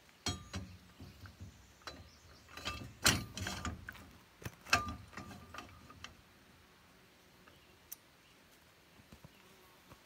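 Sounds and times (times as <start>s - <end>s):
metal knocks and clanks: 0.2s - 6.2s.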